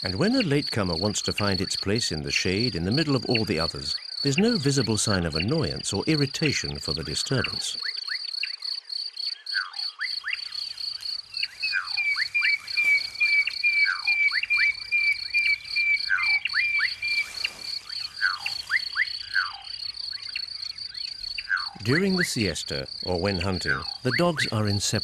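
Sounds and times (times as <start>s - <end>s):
evenly repeated bird notes: 0.0s - 25.0s
insect chirping: 0.0s - 25.0s
birds whistling: 9.4s - 24.7s.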